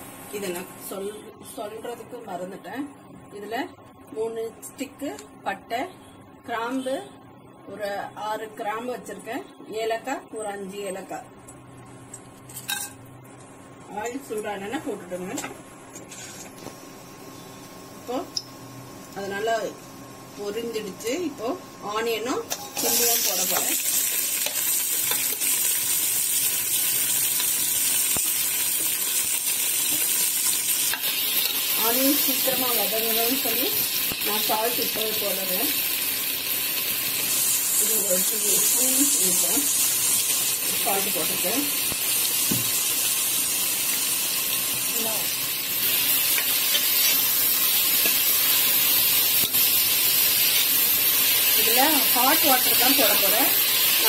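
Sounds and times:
onions sizzling in hot oil: 0:13.9 - 0:54.0.

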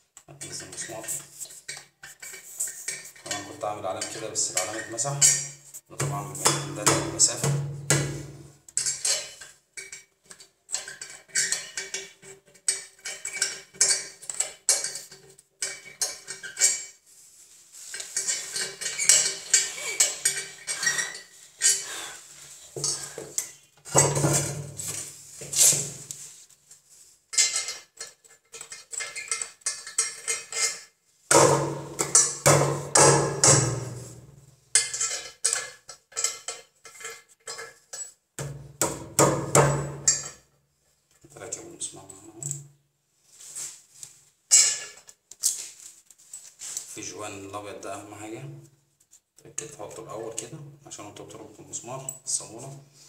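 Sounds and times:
hard objects clinking and knocking: 0:17.9 - 0:21.9, 0:27.3 - 0:40.5.

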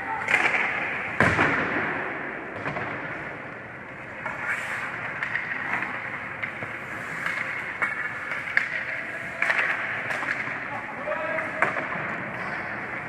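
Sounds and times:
hockey stick or puck clacks: 0:00.2 - 0:03.2, 0:04.1 - 0:13.0
skate blades scraping ice: 0:04.0 - 0:10.8.

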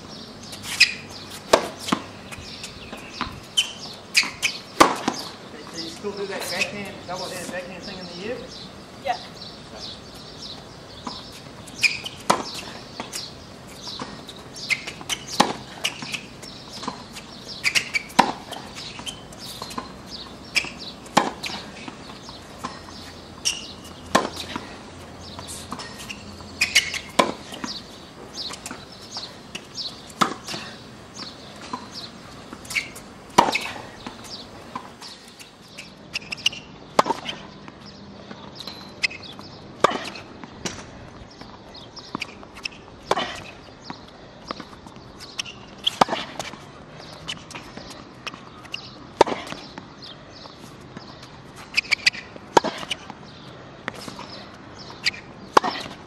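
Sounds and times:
tennis racquet hitting ball: 0:00.7 - 0:08.1, 0:11.0 - 0:37.4, 0:51.7 - 0:53.2, 0:55.0 - 0:56.0.

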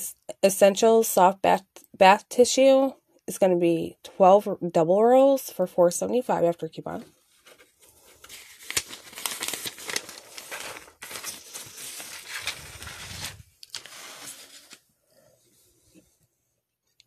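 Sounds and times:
paper rustling and crinkling: 0:07.2 - 0:14.9.

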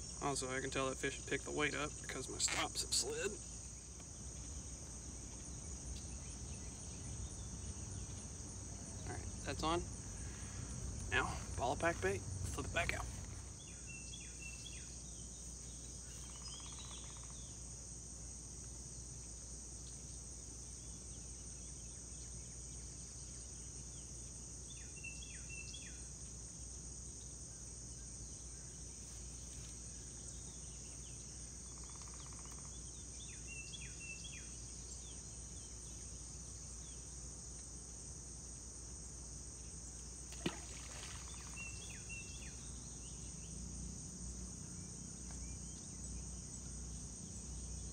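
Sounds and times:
high-pitched insect chorus: 0:00.0 - 0:47.9.

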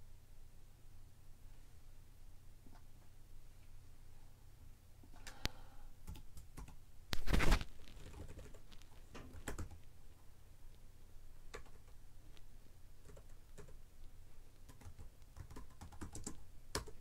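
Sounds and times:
computer keyboard typing: 0:06.0 - 0:06.8, 0:08.0 - 0:09.8, 0:11.5 - 0:12.0, 0:13.0 - 0:13.8, 0:14.7 - 0:17.0.

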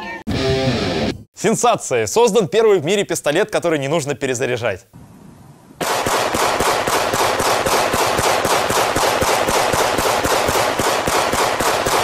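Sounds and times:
handgun rapid fire: 0:05.8 - 0:12.0.

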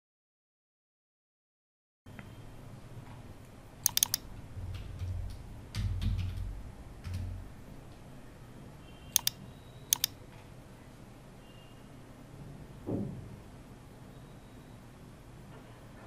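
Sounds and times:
mouse double clicks: 0:03.8 - 0:04.2, 0:09.2 - 0:10.2
keyboard typing: 0:03.8 - 0:07.4, 0:09.2 - 0:10.2.

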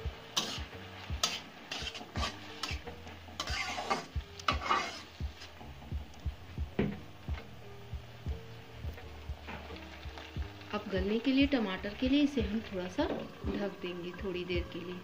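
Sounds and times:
vegetables sizzling in a pan: 0:00.0 - 0:05.9, 0:07.0 - 0:15.0
spatula scraping a pan: 0:00.3 - 0:05.6.

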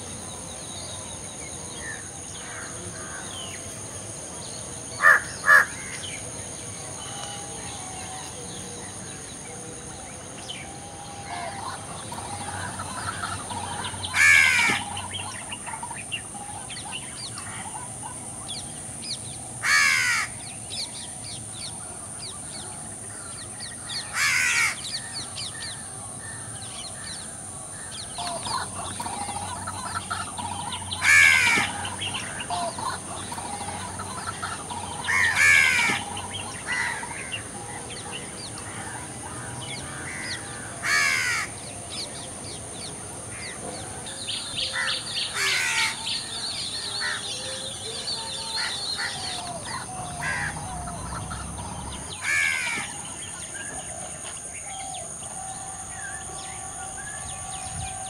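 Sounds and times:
harsh caw-like bird call: 0:05.0 - 0:06.2, 0:11.1 - 0:15.3, 0:19.6 - 0:20.4, 0:24.0 - 0:24.9, 0:27.8 - 0:37.5, 0:38.6 - 0:41.6, 0:48.2 - 0:53.3.

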